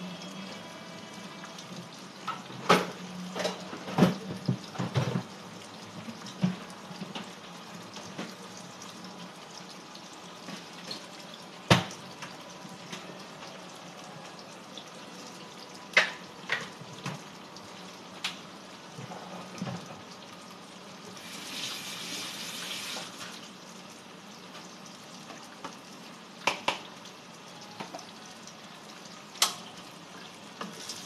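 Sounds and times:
water running from tap: 0:00.0 - 0:13.6, 0:14.3 - 0:31.0
dishes clattering in sink: 0:02.3 - 0:05.3.

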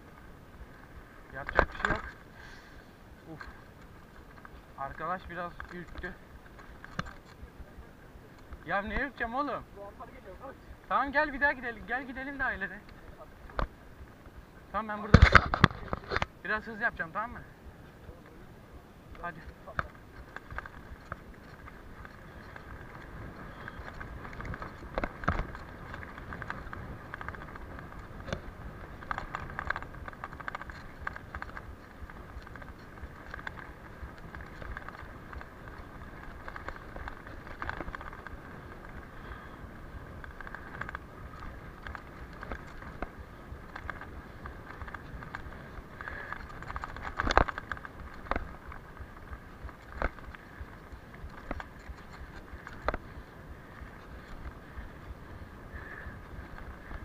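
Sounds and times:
bike rattling and knocking: 0:00.0 - 0:02.4, 0:03.2 - 0:17.4, 0:19.1 - 0:57.0
bike tyres rumbling on dirt: 0:00.0 - 0:18.6, 0:19.2 - 0:57.0
wind on microphone: 0:19.4 - 0:57.0.

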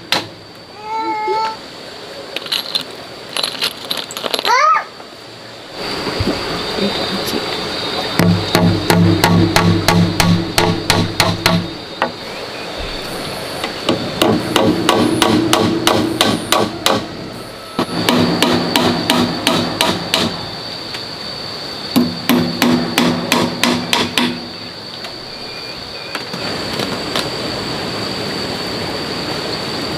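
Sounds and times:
rapid hard knocks: 0:08.2 - 0:11.7, 0:13.9 - 0:17.0.

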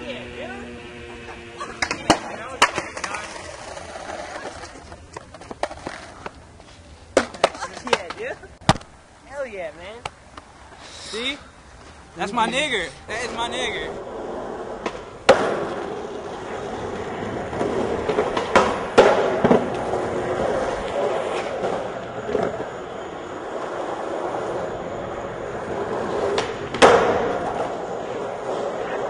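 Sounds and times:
skateboard wheels on concrete: 0:00.0 - 0:29.0
skateboard clacking on ground: 0:01.8 - 0:06.4, 0:07.1 - 0:08.8, 0:14.8 - 0:22.8, 0:25.7 - 0:29.0.

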